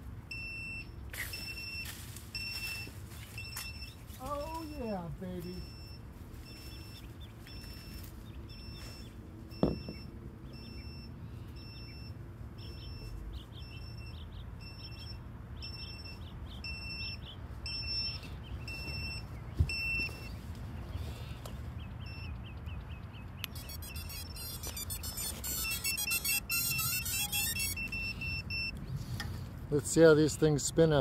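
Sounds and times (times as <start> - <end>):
electronic beeper short beeps: 0.3 - 13.1, 23.5 - 28.8
birds chirping: 2.4 - 30.6.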